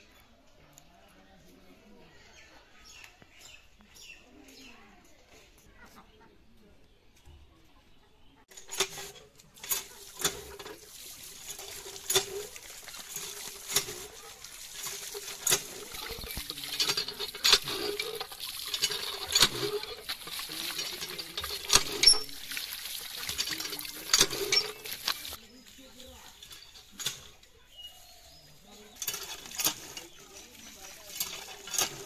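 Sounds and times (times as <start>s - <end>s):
pump squeaky creak: 8.5s - 25.4s, 28.8s - 32.0s
water gushing and splashing: 8.5s - 25.9s
pump handle knocking: 8.7s - 25.4s.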